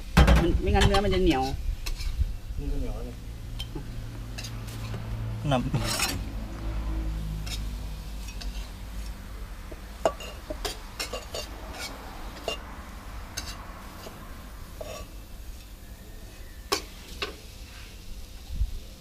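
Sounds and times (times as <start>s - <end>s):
dishes and utensils clinking: 5.7s - 6.3s, 10.0s - 12.7s, 14.8s - 15.2s.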